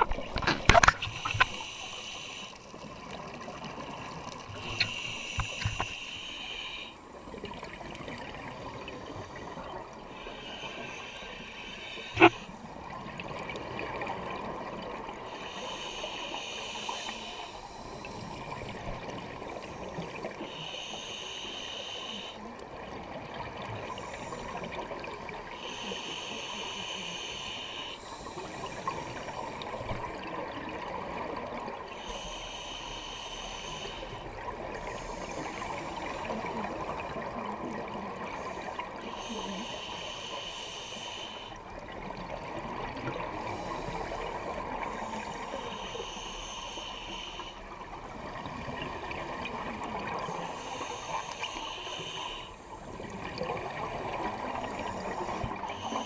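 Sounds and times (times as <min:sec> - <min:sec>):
crackling background: 0:00.0 - 0:56.0
underwater exhaled bubbles: 0:00.0 - 0:56.0.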